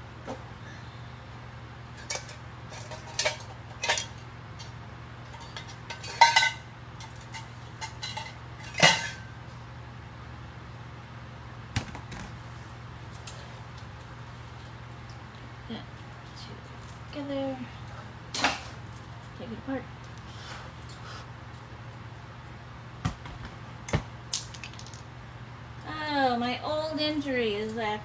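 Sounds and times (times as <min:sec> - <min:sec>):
steady low hum: 0:00.0 - 0:28.0
metal scrap clinking and clanking: 0:02.0 - 0:04.2, 0:05.3 - 0:09.3.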